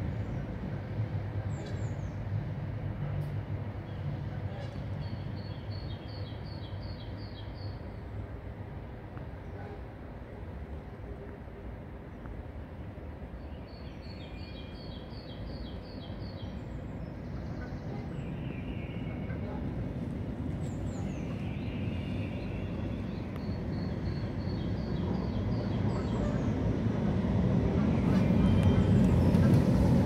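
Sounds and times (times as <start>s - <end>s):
vehicle rumble approaching: 16.5s - 30.0s.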